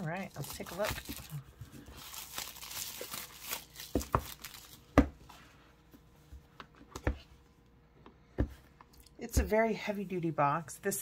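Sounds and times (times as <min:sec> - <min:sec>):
plastic wrap crinkling: 0:00.0 - 0:05.0.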